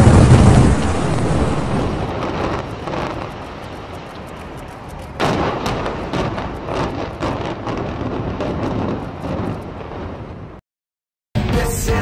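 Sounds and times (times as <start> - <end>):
loud crash: 0.0 - 3.2
debris crackling: 0.0 - 10.4
building collapse rumble: 0.0 - 10.6.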